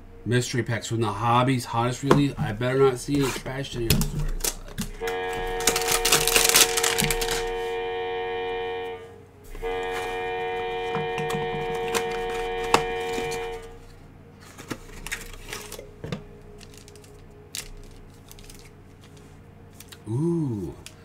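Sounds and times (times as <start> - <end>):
foil packs crackling: 3.0 - 7.6, 9.6 - 20.0
cardboard packaging tearing: 3.1 - 7.6, 11.2 - 13.8, 14.4 - 15.9, 16.5 - 19.2
held musical chord: 4.9 - 14.4.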